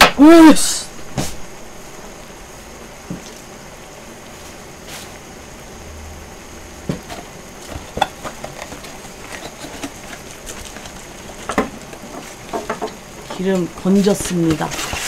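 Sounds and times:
plastic packet crinkling: 7.8 - 12.5.

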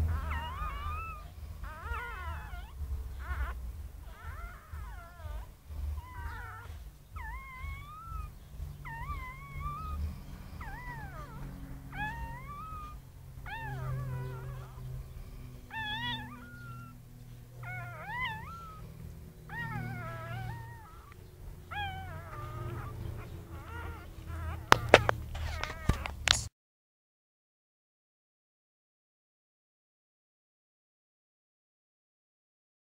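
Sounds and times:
low rumble: 0.0 - 26.2
puppy crying high squeals: 0.0 - 26.4.

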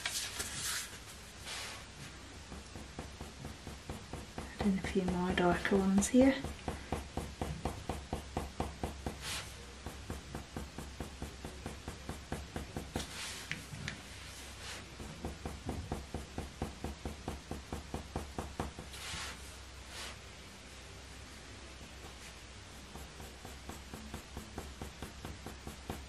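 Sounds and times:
hand swishing across paper: 0.0 - 2.2, 9.1 - 9.6, 13.0 - 14.9, 18.8 - 20.2
coloured pencil scratching paper: 22.0 - 26.0.

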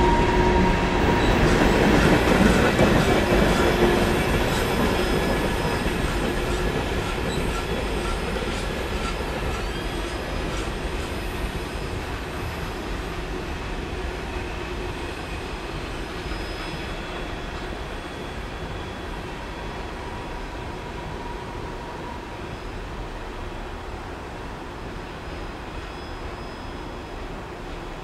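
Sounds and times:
train wheels clicking over rails: 0.6 - 13.1.

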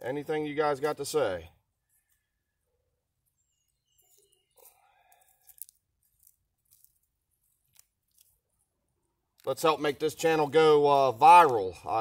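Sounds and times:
weeds pulled from dry dirt: 4.0 - 8.7.

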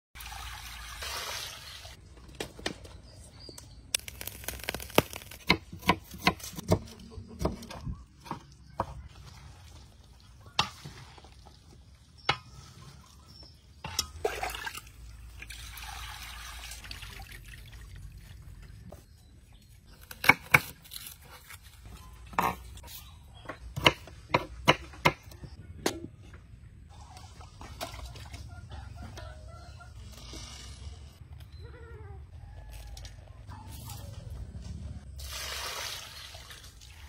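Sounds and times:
water poured into metal basin: 0.2 - 2.0, 14.2 - 18.3, 35.2 - 37.0.

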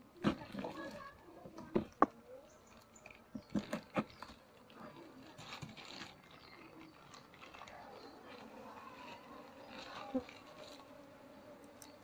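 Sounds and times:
honeybees buzzing: 0.0 - 12.0
plastic bag rustling: 2.9 - 10.8.

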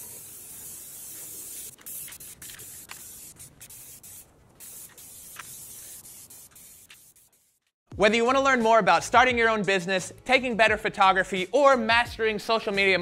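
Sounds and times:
spray paint can hissing: 0.0 - 7.8.

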